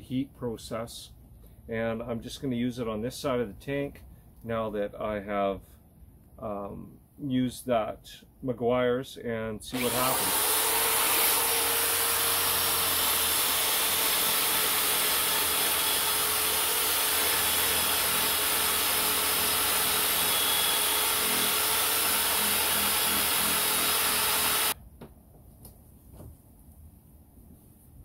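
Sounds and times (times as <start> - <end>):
electric drill polishing plastic: 9.8 - 24.8.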